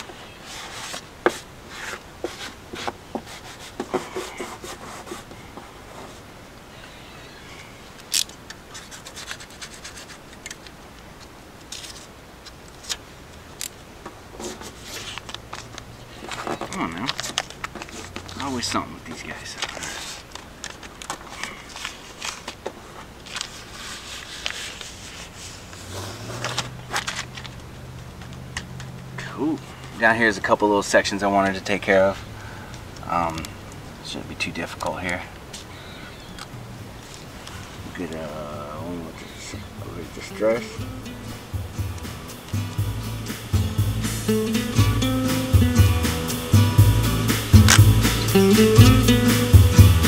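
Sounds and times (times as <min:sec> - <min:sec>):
scratchy rubbing of vinyl decal: 0:00.0 - 0:06.3, 0:08.7 - 0:10.5, 0:14.4 - 0:18.7, 0:21.4 - 0:27.3
vinyl decal crackling and rustling: 0:00.0 - 0:32.3, 0:33.0 - 0:40.6.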